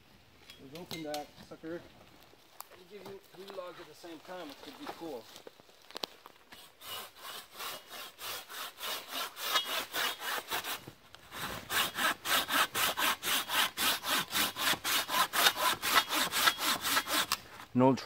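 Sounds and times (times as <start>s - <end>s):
hand saw cutting branches: 6.5s - 17.5s.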